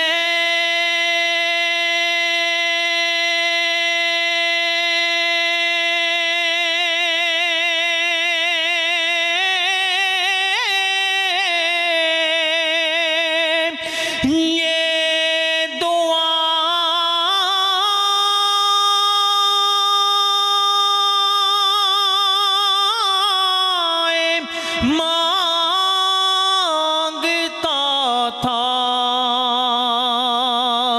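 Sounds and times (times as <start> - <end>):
man singing unaccompanied: 0.0 - 30.9
singer breathing: 13.7 - 14.3, 24.4 - 25.0.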